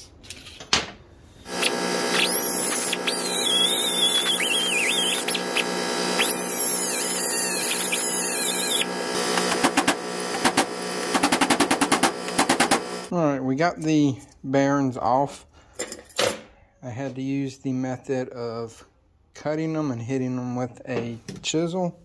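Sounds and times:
die grinder whining: 0:01.5 - 0:13.1.

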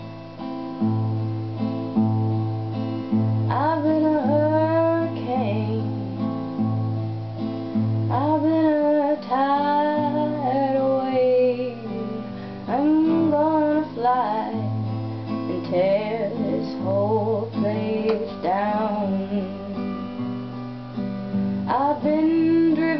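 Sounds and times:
fingerpicked acoustic guitar: 0:00.0 - 0:22.9
woman singing: 0:03.4 - 0:06.8, 0:08.1 - 0:20.6, 0:21.6 - 0:22.9.

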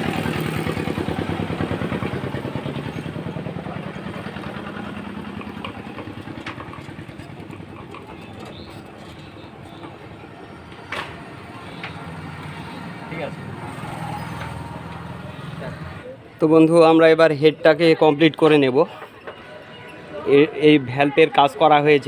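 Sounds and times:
engine turning over with clatter: 0:00.0 - 0:16.0.

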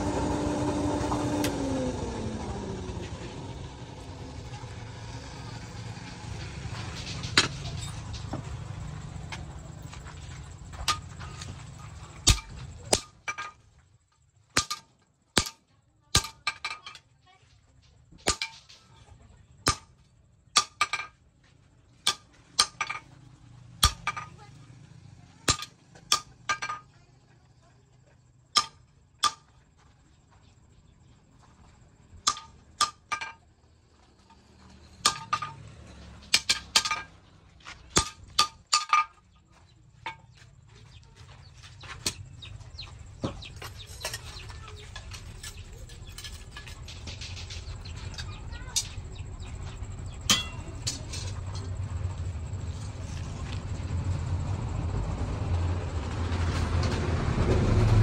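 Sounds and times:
hammer striking metal on anvil: 0:14.6 - 0:15.6, 0:22.0 - 0:23.0, 0:23.8 - 0:24.2, 0:28.6 - 0:29.5, 0:32.2 - 0:33.3, 0:35.0 - 0:35.6, 0:50.2 - 0:51.3
low rumble: 0:40.6 - 0:58.0.

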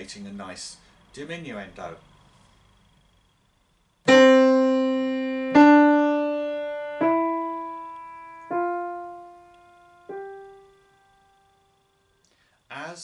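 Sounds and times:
piano notes ringing: 0:04.1 - 0:11.7.

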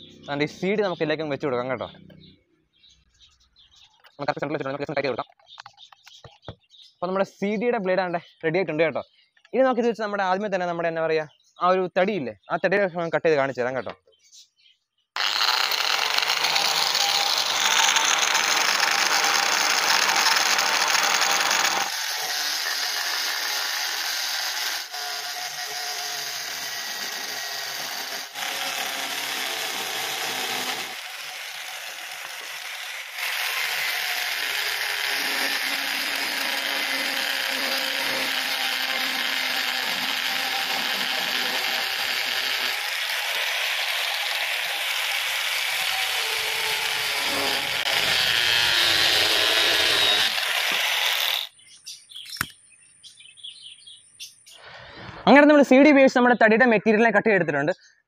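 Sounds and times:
angle grinder grinding wood: 0:15.2 - 0:51.6.

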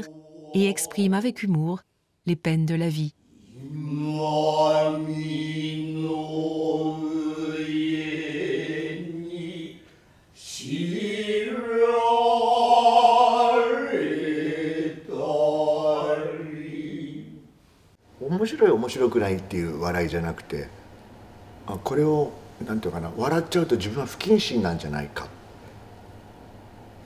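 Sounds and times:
low-voiced chanting: 0:00.0 - 0:01.1, 0:03.3 - 0:17.5.

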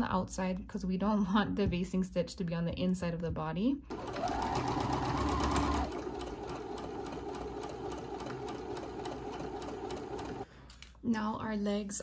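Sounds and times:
sewing machine needle ticking: 0:03.9 - 0:10.5.

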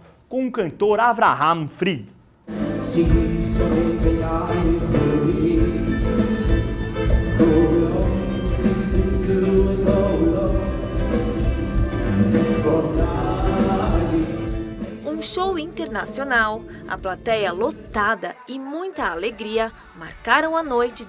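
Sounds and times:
live band music: 0:02.4 - 0:18.1
man singing: 0:02.5 - 0:15.2.

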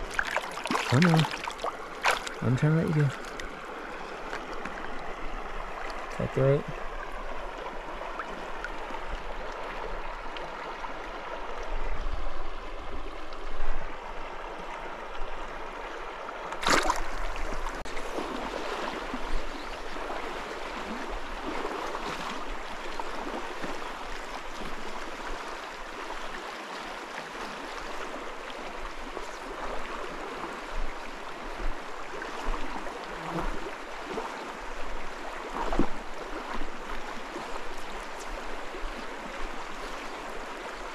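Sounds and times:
creek rushing over rocks: 0:00.0 - 0:40.9.

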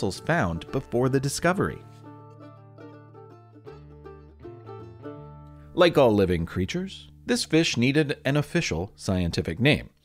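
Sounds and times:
plucked string instrument melody: 0:00.0 - 0:08.5.

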